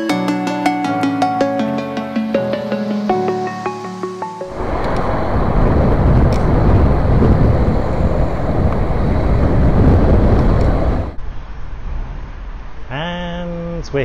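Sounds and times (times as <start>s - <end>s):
electronic music: 0.0s - 5.4s
wind buffeting microphone: 4.5s - 11.2s.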